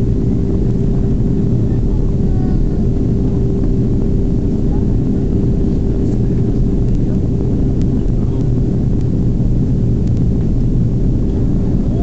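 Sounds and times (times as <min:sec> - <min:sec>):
jet engine and airflow rush: 0:00.0 - 0:12.0
steady low hum: 0:00.0 - 0:12.0.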